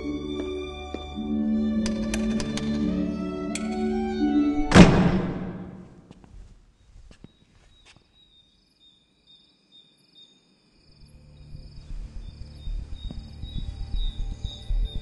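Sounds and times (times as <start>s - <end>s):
crickets chirping: 6.8s - 15.0s
low rumbling drone: 11.0s - 15.0s.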